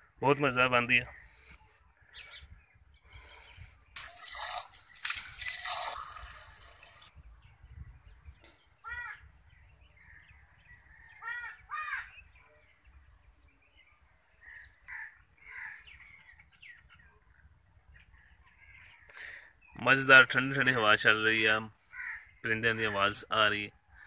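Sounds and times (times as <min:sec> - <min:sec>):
crows cawing: 0:08.8 - 0:09.2, 0:11.0 - 0:12.2, 0:14.4 - 0:16.1, 0:21.8 - 0:22.8.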